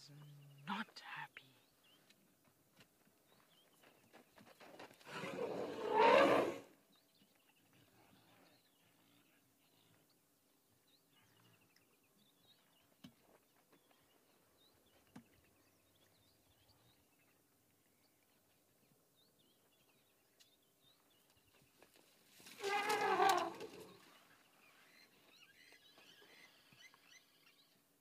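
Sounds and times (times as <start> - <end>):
loud short animal call: 22.6 - 23.8.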